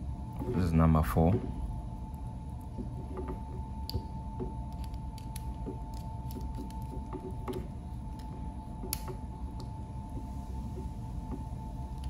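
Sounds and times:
faint steady hum: 0.0 - 12.0
screwdriver clicks and creaks: 4.7 - 9.7.

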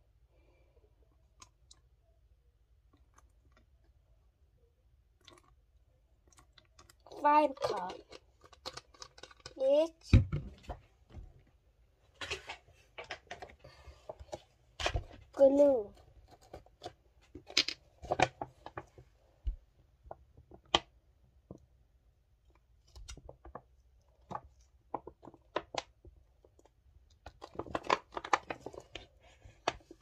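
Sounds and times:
plastic package rustling: 7.1 - 9.7.

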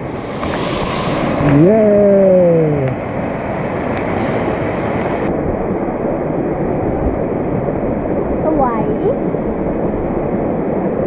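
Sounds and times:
waterfall rushing: 0.0 - 5.3
person calling: 1.4 - 3.0.

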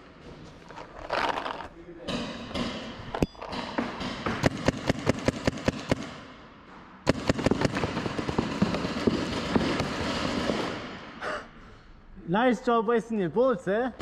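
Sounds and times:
paintball markers firing pops: 3.0 - 6.2.

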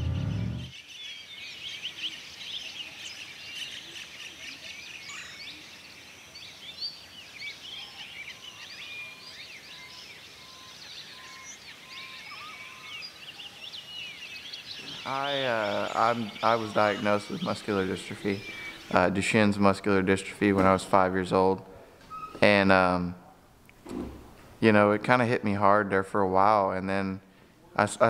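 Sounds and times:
car road rumble: 0.0 - 0.7
chorus of birds chirping: 0.0 - 22.9
evenly spaced lower bird notes: 0.0 - 23.4.

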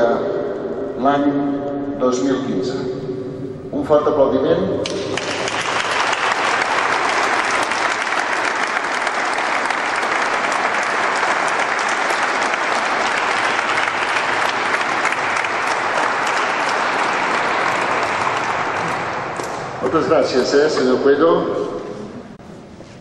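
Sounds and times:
congregation applauding: 4.8 - 20.8.

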